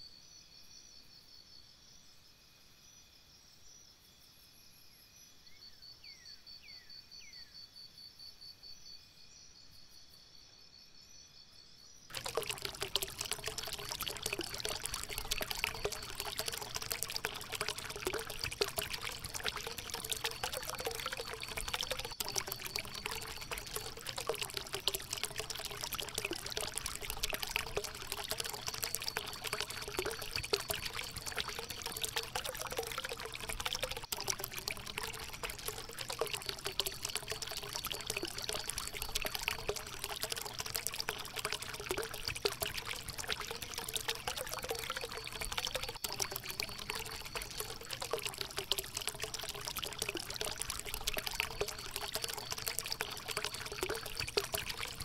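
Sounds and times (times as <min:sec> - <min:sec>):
insects chirring: 0:11.9 - 0:43.9.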